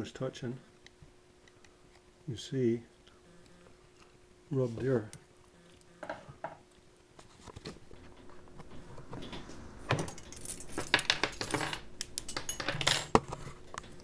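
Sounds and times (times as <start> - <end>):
metal tools clinking and rattling: 10.0 - 13.3.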